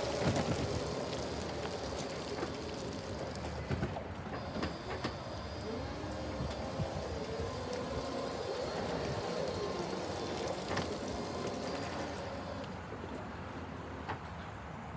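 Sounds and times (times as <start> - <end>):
tyres hissing on wet surface: 0.0 - 12.8
electric motor whining: 4.3 - 12.8.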